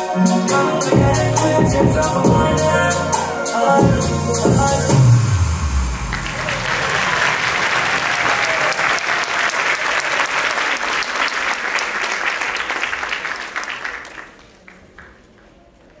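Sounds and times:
audience applauding: 0:06.0 - 0:16.0.

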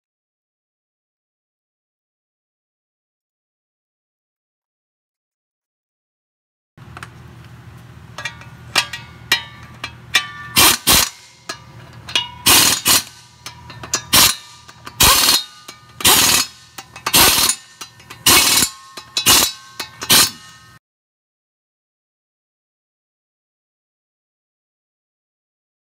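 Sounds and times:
faint metal ringing: 0:08.1 - 0:20.8
wrench metallic rattling: 0:08.1 - 0:20.8.

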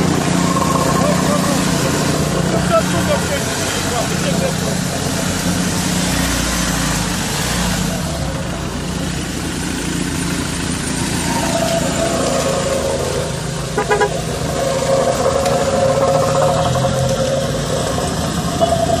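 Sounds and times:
vehicles on wet road: 0:00.0 - 0:19.0
car horn honking: 0:13.7 - 0:14.4.

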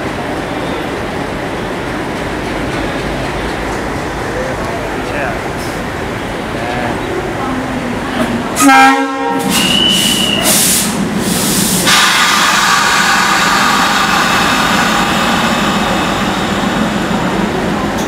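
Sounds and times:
diesel locomotives idling: 0:09.4 - 0:18.0
air hiss: 0:09.5 - 0:16.9.

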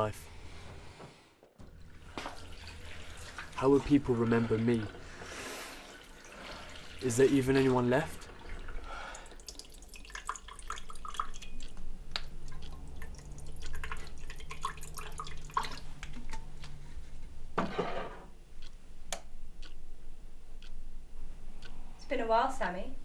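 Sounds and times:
liquid dripping: 0:01.6 - 0:16.8.

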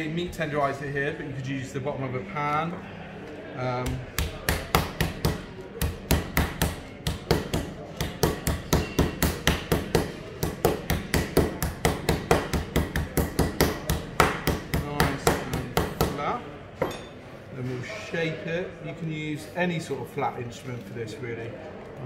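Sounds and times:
meat tenderizer pounding fish: 0:03.9 - 0:16.2.

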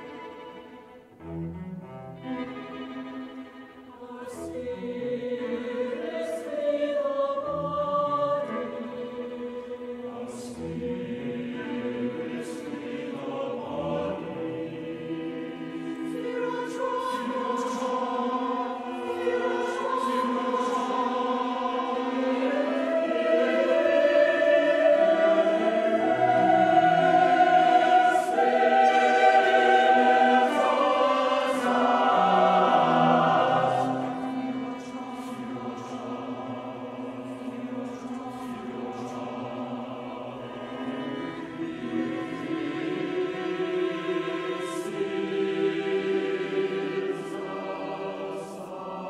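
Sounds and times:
choir singing sustained chords: 0:00.0 - 0:49.0.

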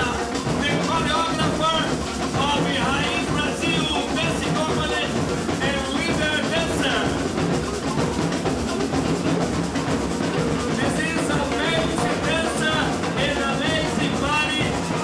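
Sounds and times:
drums and percussion: 0:00.0 - 0:15.0.

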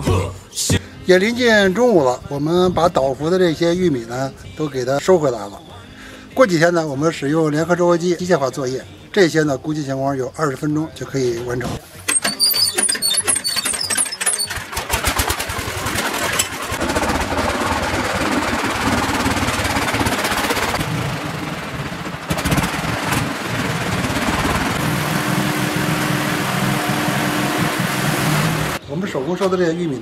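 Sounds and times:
engine starting and running: 0:12.1 - 0:28.8.

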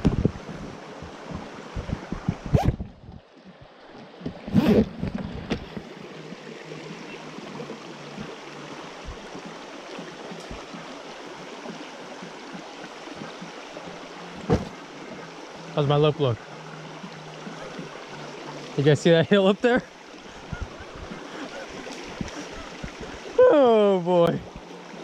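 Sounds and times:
creek flowing over rocks: 0:00.0 - 0:25.0.

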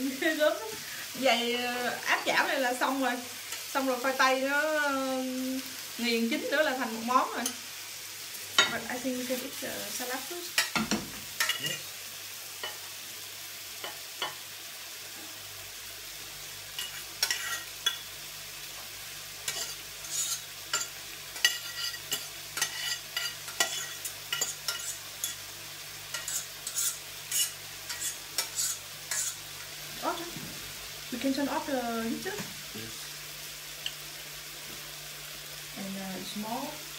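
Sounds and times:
patties sizzling in skillet: 0:00.0 - 0:36.9
utensil scraping steel saucepan: 0:19.5 - 0:25.4, 0:26.1 - 0:29.4.

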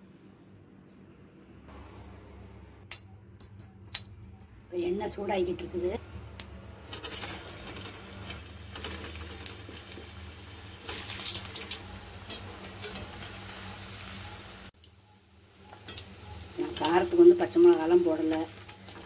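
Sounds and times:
low hum: 0:00.0 - 0:06.9
oil crackle: 0:06.8 - 0:19.0
oil hissing in a pan: 0:09.0 - 0:14.7.

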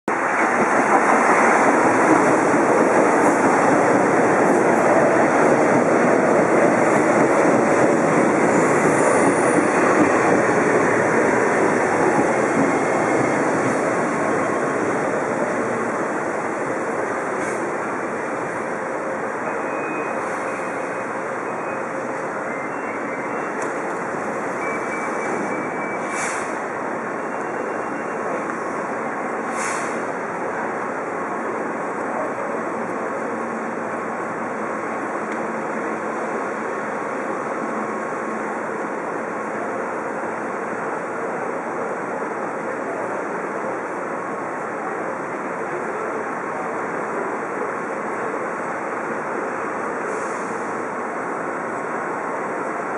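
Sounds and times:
train rumbling to a stop: 0:00.1 - 0:52.9
faint high wheel squeals: 0:19.4 - 0:23.6, 0:27.1 - 0:28.4.

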